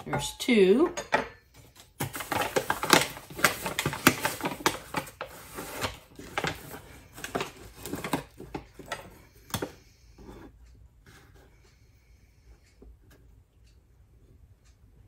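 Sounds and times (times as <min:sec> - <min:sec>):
paper bag crinkling: 0:02.0 - 0:08.1.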